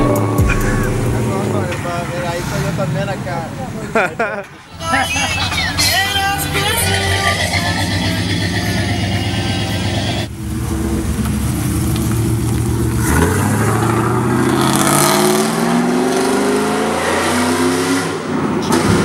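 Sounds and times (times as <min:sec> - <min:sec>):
truck engine accelerating: 0:00.0 - 0:19.0.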